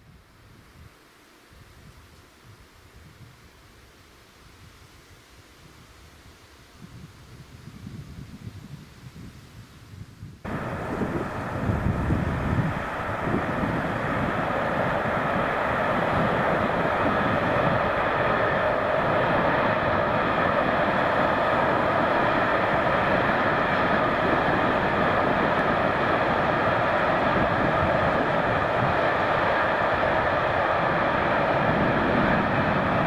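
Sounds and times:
distant train wheels on rails: 10.5s - 33.0s.

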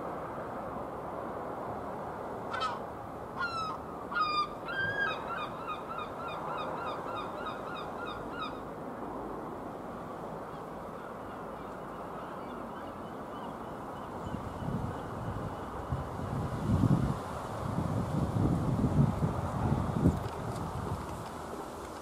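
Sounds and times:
gull calling: 2.5s - 2.8s, 3.4s - 8.6s.

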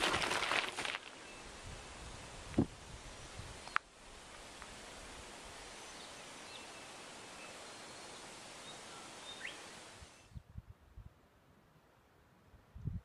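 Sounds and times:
outdoor ambience hiss: 0.0s - 13.0s
wind thumps on microphone: 1.6s - 3.6s, 12.7s - 13.0s
faint bird chirps: 5.7s - 10.4s.

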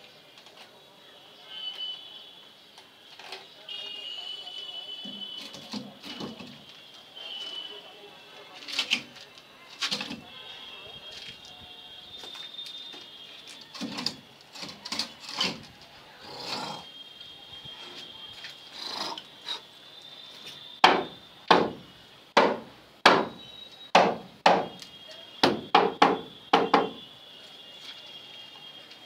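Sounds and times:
hammer striking wood: 20.8s - 21.8s, 22.4s - 24.8s, 25.4s - 27.0s.

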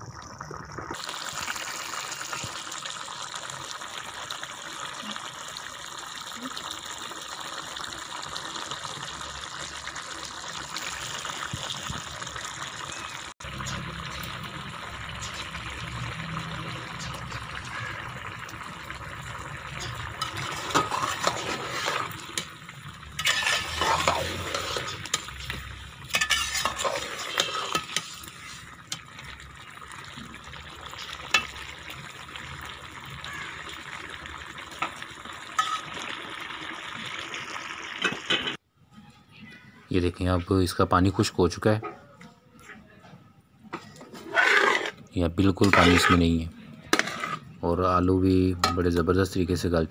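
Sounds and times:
potatoes bubbling in a pot: 0.0s - 38.6s, 43.8s - 49.9s
spoon scraping a pot: 19.8s - 22.5s, 23.2s - 29.0s, 43.8s - 47.5s.

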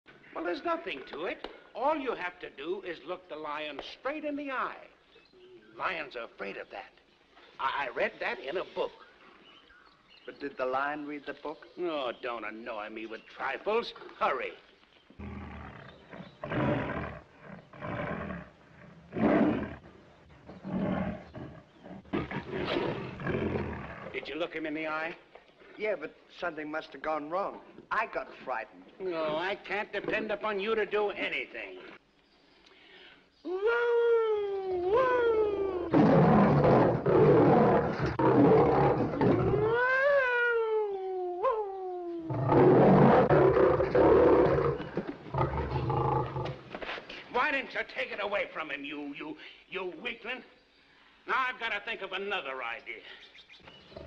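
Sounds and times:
lion roaring: 15.2s - 19.8s, 20.6s - 24.2s, 35.6s - 40.2s, 42.2s - 46.6s.

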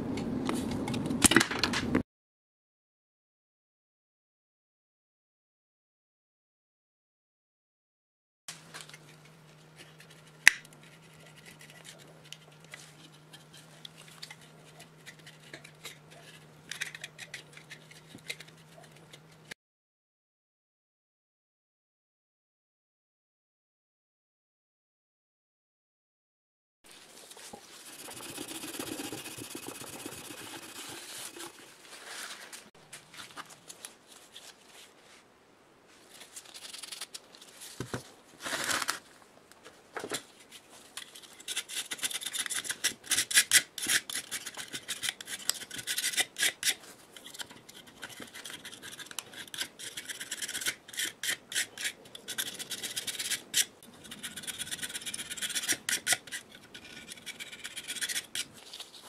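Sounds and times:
scraper scraping metal: 27.7s - 32.6s, 41.0s - 58.6s.

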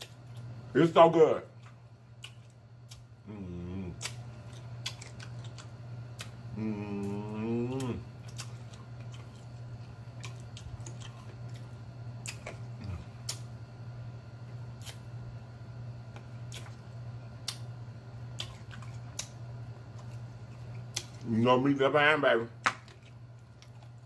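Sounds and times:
steady low hum: 0.0s - 24.0s
wet eating smacks and chewing: 1.5s - 3.2s, 3.8s - 13.6s, 14.4s - 15.2s, 16.0s - 21.3s, 22.6s - 24.0s
fingers licked: 2.2s - 3.1s, 3.8s - 9.5s, 10.2s - 13.5s, 17.4s - 17.7s.

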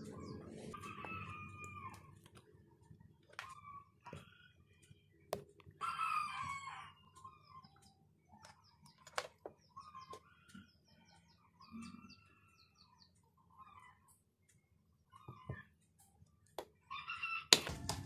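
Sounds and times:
small birds chirping: 0.0s - 17.4s
rooster crowing: 0.7s - 2.1s, 5.8s - 7.0s, 16.9s - 17.6s.

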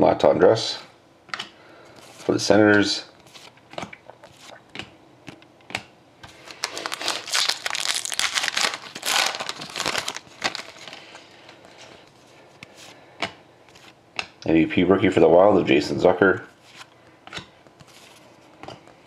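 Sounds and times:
foil wrapper crinkling: 6.3s - 11.6s.

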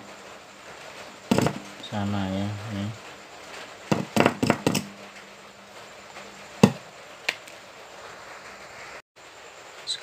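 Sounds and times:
faint hum: 0.0s - 10.0s
sharp clicks and knocks: 1.3s - 1.7s, 3.9s - 4.9s.

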